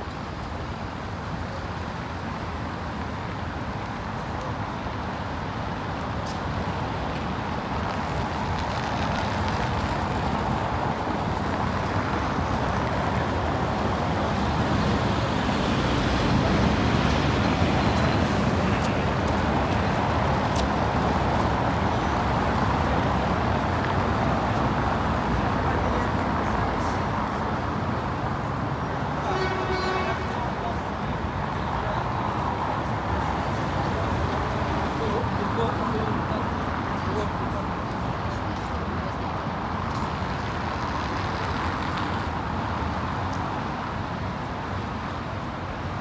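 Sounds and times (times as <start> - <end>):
road traffic passing cars: 0.0 - 46.0.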